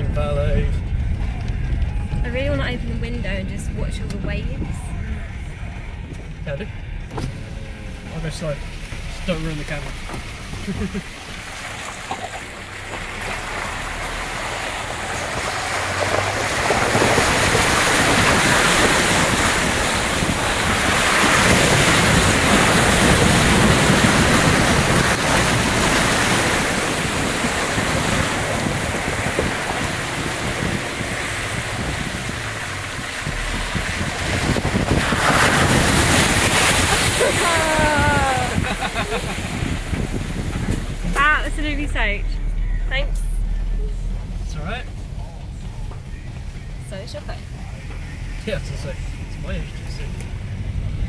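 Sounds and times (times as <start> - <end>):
water rushing and splashing: 7.1 - 51.0
water spraying on windscreen: 7.2 - 42.2.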